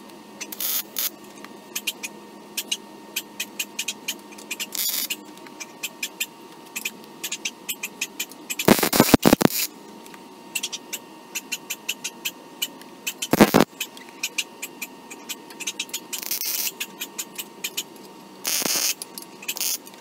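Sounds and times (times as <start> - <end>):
welder arc on steel: 8.6 - 9.7, 13.3 - 13.7, 18.4 - 19.8.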